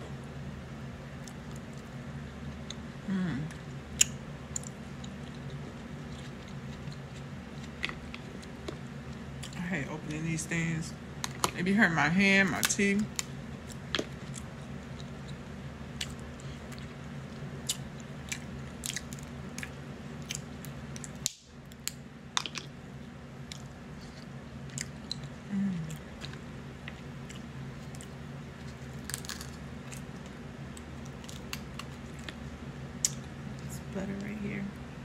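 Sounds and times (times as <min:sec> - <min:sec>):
low steady hum: 0:00.0 - 0:35.0
chewing: 0:03.6 - 0:09.6, 0:13.2 - 0:21.2, 0:23.4 - 0:32.4
crab shells cracking: 0:17.6 - 0:22.8, 0:28.8 - 0:32.4.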